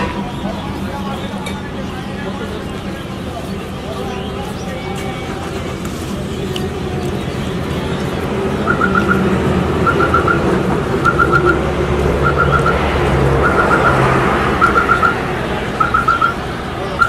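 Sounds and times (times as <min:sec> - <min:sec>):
street traffic rumble: 0:00.0 - 0:17.0
electronic alarm chirping: 0:08.6 - 0:16.4.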